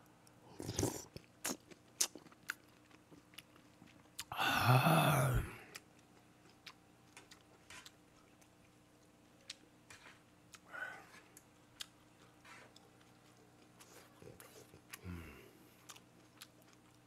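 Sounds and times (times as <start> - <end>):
quiet chewing: 0.0 - 4.4, 5.5 - 17.0
mouth noise: 4.3 - 5.6.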